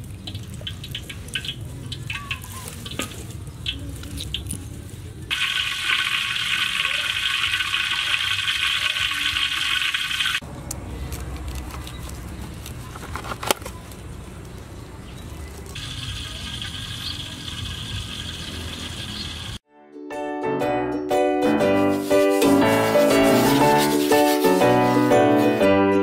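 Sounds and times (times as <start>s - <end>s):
meat sizzling in hot oil: 5.3s - 10.4s, 15.8s - 19.6s.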